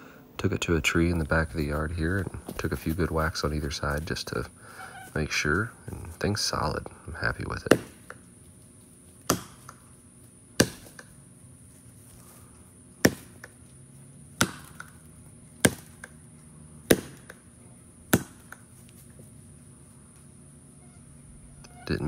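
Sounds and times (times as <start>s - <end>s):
axe chopping tree trunk: 7.7s - 8.2s, 9.2s - 9.8s, 10.6s - 11.2s, 13.0s - 13.6s, 14.3s - 16.2s, 16.8s - 18.7s.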